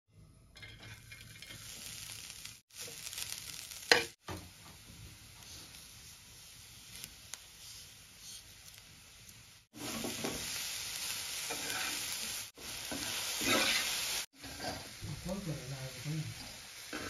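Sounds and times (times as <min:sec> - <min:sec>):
food sizzling in a pan: 0:00.5 - 0:17.0
metal spatula scraping pan: 0:11.5 - 0:12.1, 0:12.9 - 0:15.0.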